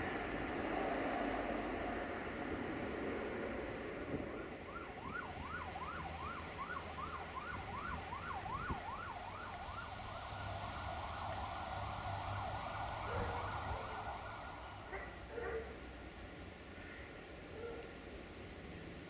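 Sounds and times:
siren yelping: 0:04.3 - 0:15.3.

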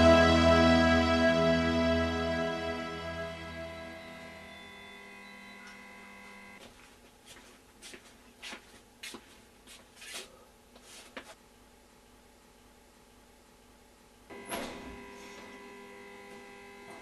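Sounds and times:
soft music: 0:00.0 - 0:05.9.

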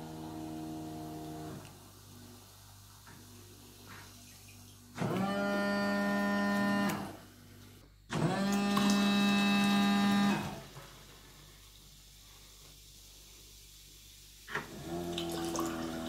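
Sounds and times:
small electric pump humming: 0:00.0 - 0:02.4, 0:03.9 - 0:10.8, 0:14.5 - 0:16.0.

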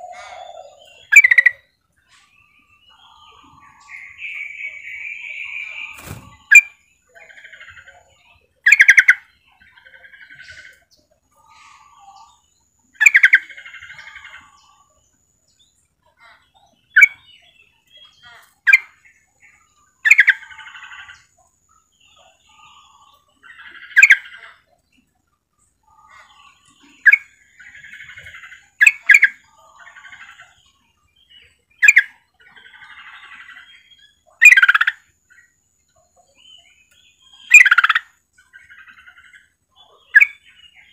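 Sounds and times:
bird chattering: 0:00.0 - 0:01.7, 0:03.0 - 0:10.8, 0:13.0 - 0:14.8, 0:25.9 - 0:30.6, 0:31.8 - 0:35.4, 0:37.2 - 0:40.9
bird calling: 0:00.0 - 0:14.9, 0:25.9 - 0:30.7, 0:31.3 - 0:35.5, 0:36.4 - 0:40.9.

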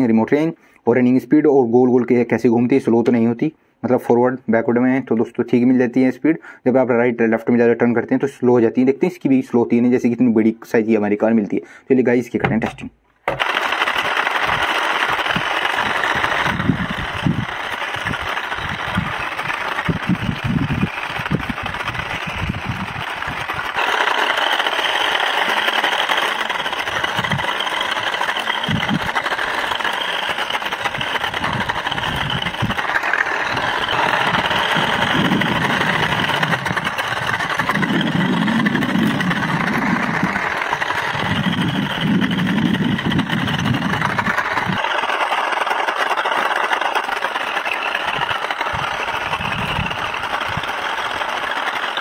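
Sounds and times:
toy car electric motor whirring: 0:13.2 - 0:52.0.

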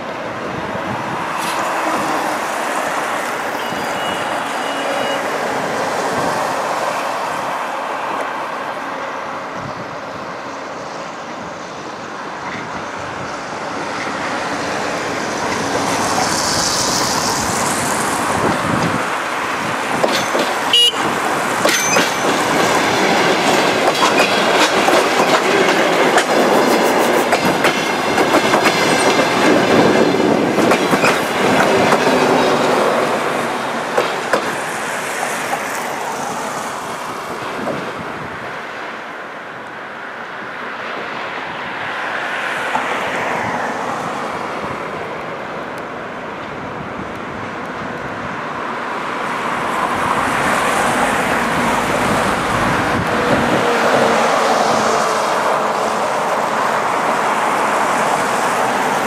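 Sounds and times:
diesel train running: 0:00.0 - 0:39.6, 0:44.5 - 0:59.0
wheels clattering over rail joints: 0:19.7 - 0:32.8.

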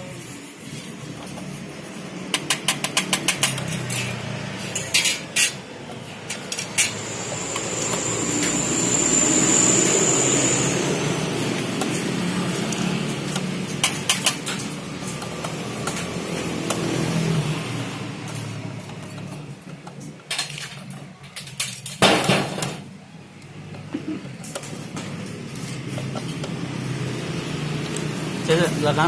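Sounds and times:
screwdriver clicking on sheet metal: 0:02.3 - 0:05.6
clatter: 0:02.3 - 0:10.8.

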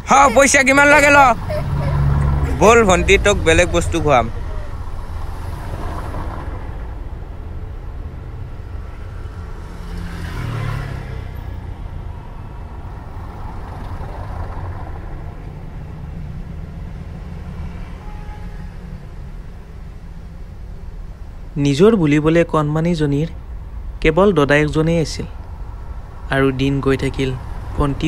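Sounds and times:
vehicle passing close: 0:00.0 - 0:21.6, 0:25.4 - 0:28.0
vehicle engines rumbling: 0:00.0 - 0:28.0.

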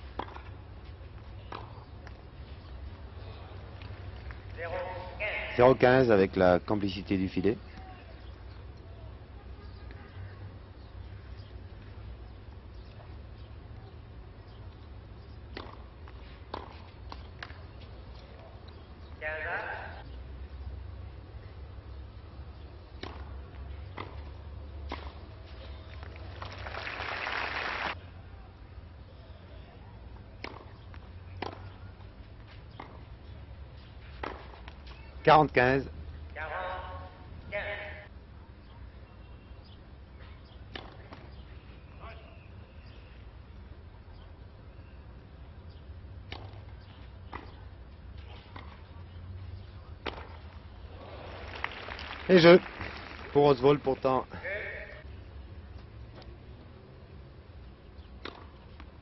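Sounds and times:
tennis racket hitting ball: 0:15.5 - 0:15.9, 0:16.5 - 0:17.5, 0:58.2 - 0:58.6
crowd applauding: 0:26.2 - 0:28.0, 0:51.0 - 0:54.0.

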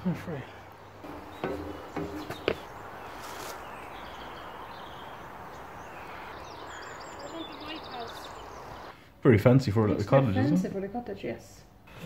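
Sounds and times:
steady outdoor hiss: 0:00.0 - 0:12.0
faint bird chirps: 0:00.4 - 0:09.0
short knocks: 0:01.0 - 0:02.8.

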